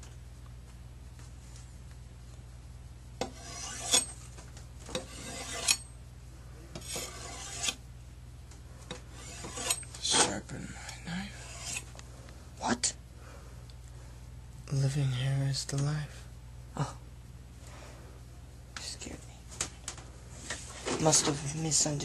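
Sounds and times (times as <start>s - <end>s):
rasping rubbing noises: 3.2s - 4.2s, 5.0s - 5.8s, 6.8s - 7.8s, 9.1s - 10.4s, 11.3s - 11.9s.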